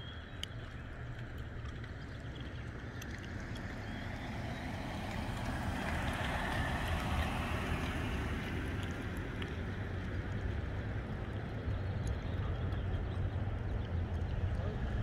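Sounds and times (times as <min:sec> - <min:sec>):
car driving past: 0:03.6 - 0:09.0.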